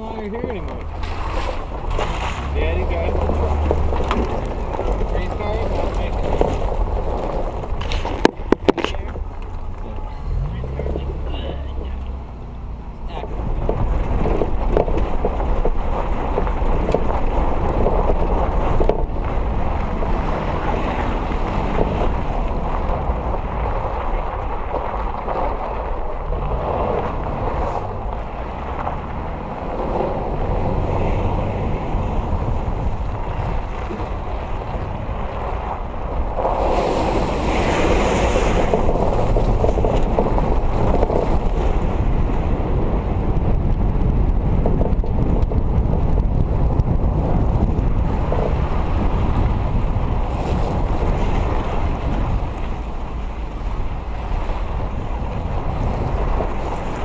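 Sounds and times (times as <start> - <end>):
engine and tyre rumble: 0.0 - 57.0
wind buffeting microphone: 0.0 - 57.0.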